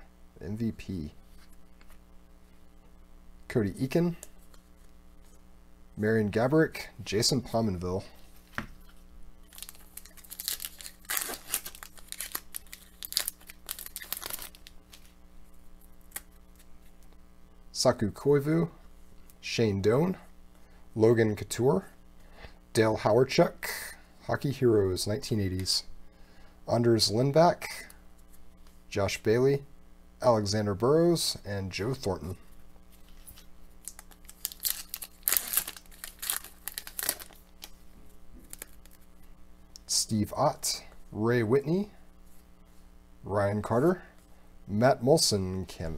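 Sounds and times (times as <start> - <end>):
wrapper being torn and crinkled: 9.4 - 15.2, 33.1 - 37.8, 38.4 - 39.1.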